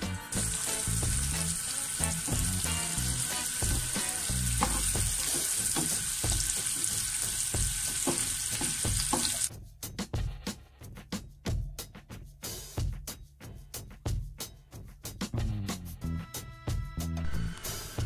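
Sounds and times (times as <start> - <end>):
onion sizzling in hot oil: 0.0 - 9.5
spatula scraping a pan: 0.3 - 9.5.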